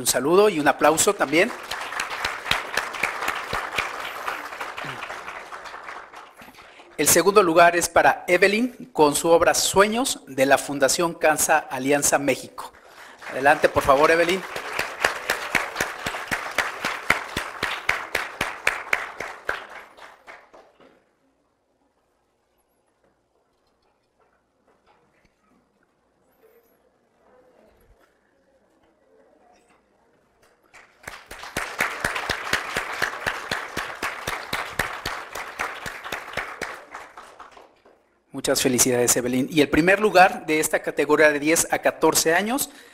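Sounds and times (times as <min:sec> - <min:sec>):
room applause: 0:00.0 - 0:07.9, 0:11.4 - 0:21.2, 0:30.6 - 0:38.2
hands clapping close by: 0:01.0 - 0:06.9, 0:13.2 - 0:20.9, 0:30.7 - 0:38.0.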